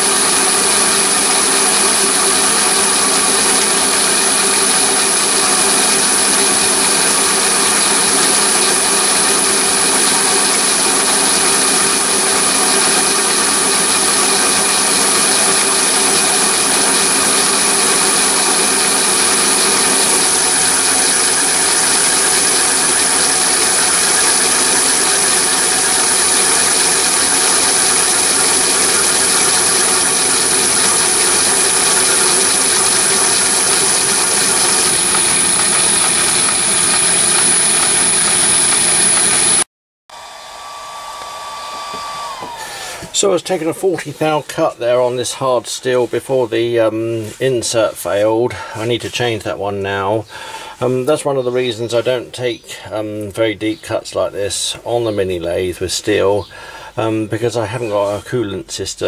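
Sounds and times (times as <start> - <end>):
high steady motor whine: 0.0 - 43.7
lathe cutting steel: 0.0 - 46.0.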